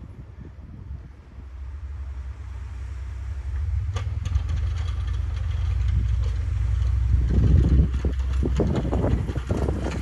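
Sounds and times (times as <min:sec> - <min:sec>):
diesel truck engine running: 0:01.6 - 0:10.0
clatter of clicks: 0:03.9 - 0:10.0.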